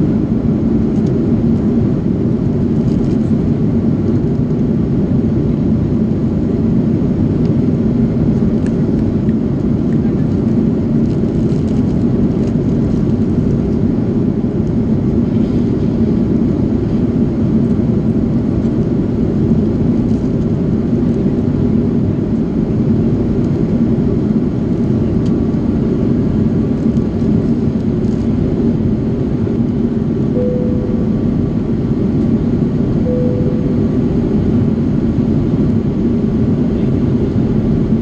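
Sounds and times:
airplane cabin engine drone: 0.0 - 38.0
steady low hum: 28.4 - 38.0.

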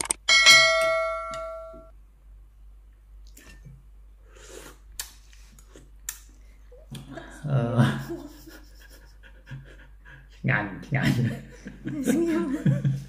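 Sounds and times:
bright bell chime: 0.3 - 1.9
soft eating sounds: 3.1 - 7.4.

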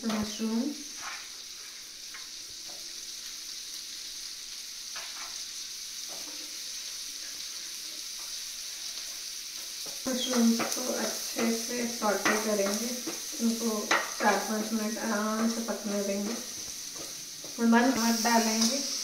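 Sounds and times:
vegetables sizzling in butter: 0.0 - 19.0
wooden spatula scraping: 0.9 - 1.7, 5.0 - 5.4, 9.8 - 18.9.

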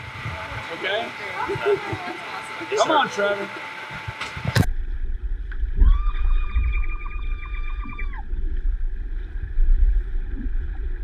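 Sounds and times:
high steady warbling tone: 0.0 - 11.0
muffled underwater water churning: 4.0 - 11.0.

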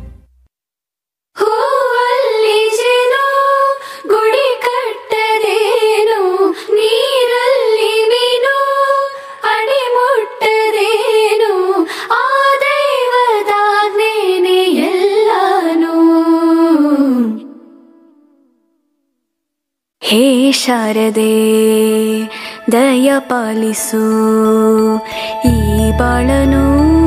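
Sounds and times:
woman singing wordless melody: 1.4 - 18.5, 20.0 - 27.0.

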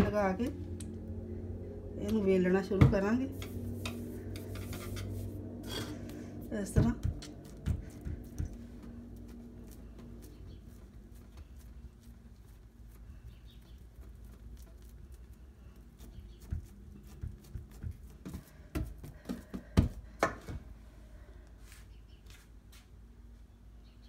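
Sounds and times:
low steady hum: 0.0 - 24.0
hands patting dough on countertop: 6.1 - 20.7.

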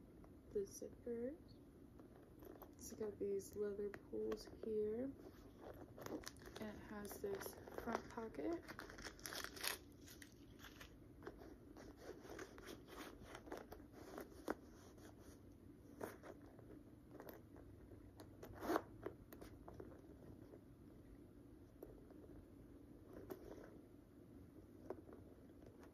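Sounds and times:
tissue paper rustling: 5.2 - 11.0
metal zipper opening and closing: 18.4 - 19.0.

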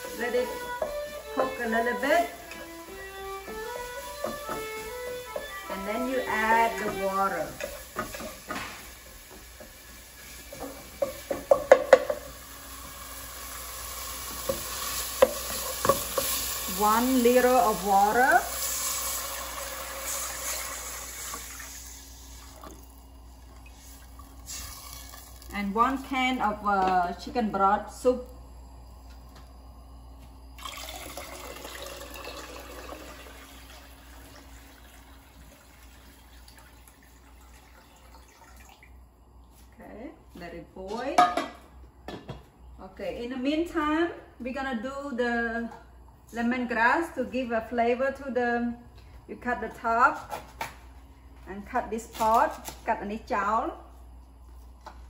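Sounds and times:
food sizzling in oil: 0.0 - 25.6
broth pouring into pot splashing: 18.4 - 25.5, 30.6 - 39.0.

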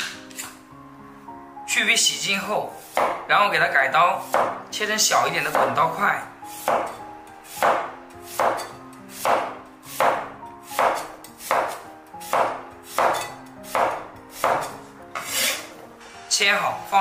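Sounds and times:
cleaver chopping on wooden board: 2.9 - 3.2, 4.3 - 4.6, 6.6 - 7.0, 7.6 - 15.4.

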